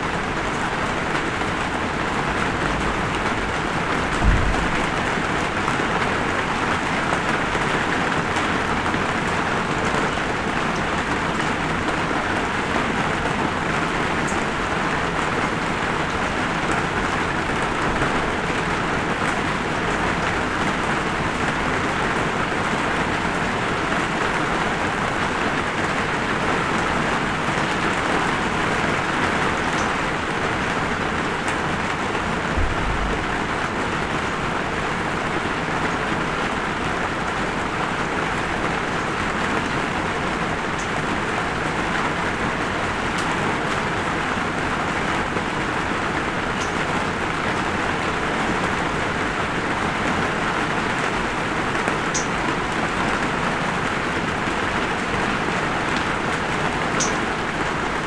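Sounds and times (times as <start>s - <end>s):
light rain falling: 0.0s - 58.0s
raindrops ticking: 51.8s - 53.0s.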